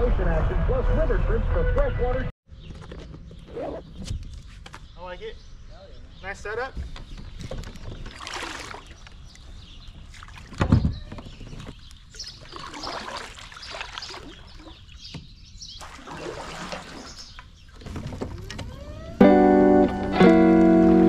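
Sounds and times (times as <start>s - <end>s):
paddle splashing water: 8.0s - 9.2s, 10.0s - 10.6s, 11.6s - 15.1s, 15.7s - 18.7s
water trickling: 12.1s - 15.1s, 15.7s - 18.6s.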